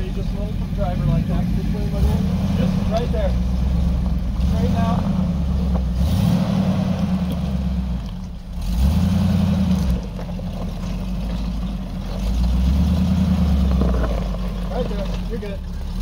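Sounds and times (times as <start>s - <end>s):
off-road engine revving: 0.0s - 16.0s.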